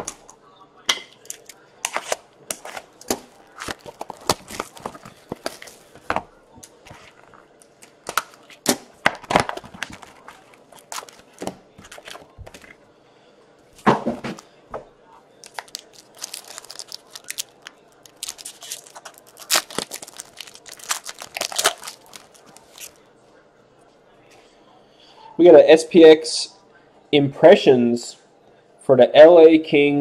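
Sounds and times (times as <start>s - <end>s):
plastic wrapping crinkling and tearing: 1.4s - 12.8s, 15.4s - 23.0s.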